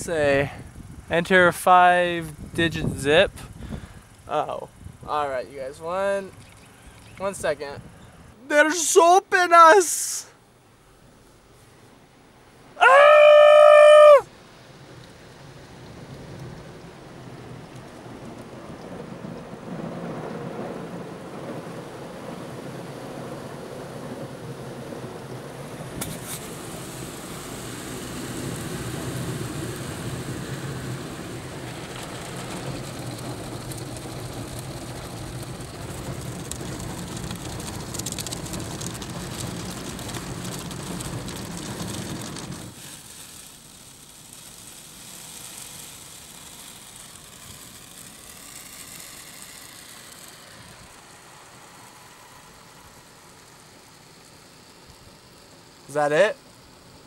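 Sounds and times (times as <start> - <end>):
steady hiss: 0.0 - 57.0
water rushing over car: 12.6 - 57.0
car wash brushes scrubbing: 24.9 - 49.2.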